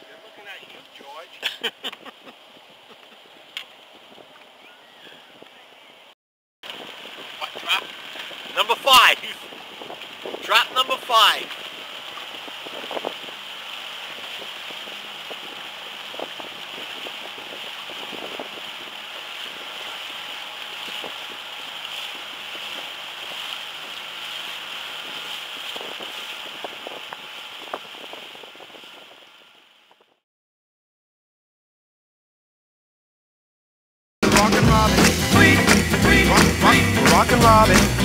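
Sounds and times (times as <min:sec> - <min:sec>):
water rushing past hull: 0:06.6 - 0:29.8, 0:34.2 - 0:38.0
wind on microphone: 0:06.7 - 0:30.2
outboard motor running: 0:06.9 - 0:30.0.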